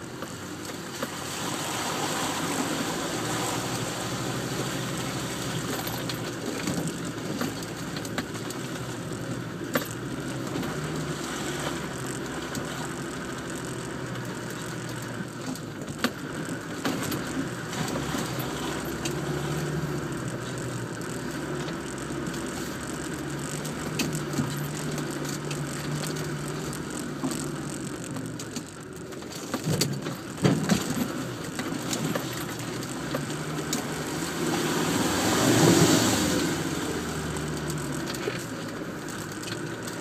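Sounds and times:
engine running inside vehicle cab: 0.0s - 40.0s
vehicle knocks and rattles: 0.0s - 40.0s.

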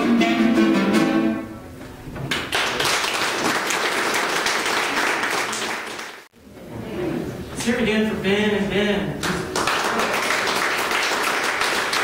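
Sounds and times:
plucked string instrument: 0.0s - 1.7s
audience applause: 2.3s - 6.3s, 9.4s - 12.0s.

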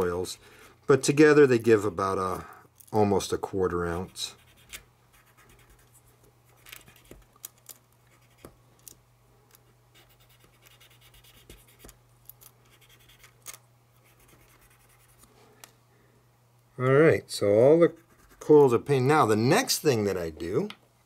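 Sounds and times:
steady low hum: 0.0s - 21.0s
cotton swab scratching: 3.9s - 7.3s, 9.9s - 11.9s, 14.0s - 15.3s, 17.8s - 18.6s.

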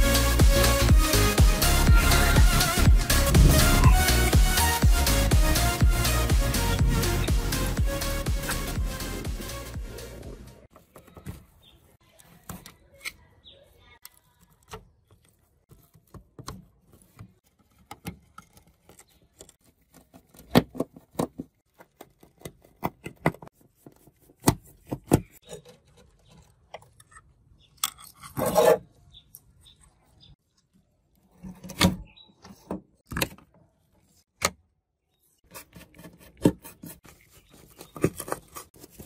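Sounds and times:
circuit board scraping on metal: 28.0s - 29.0s.

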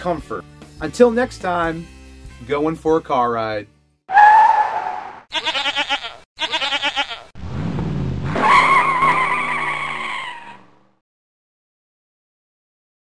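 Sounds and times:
goat bleating: 5.3s - 7.3s.

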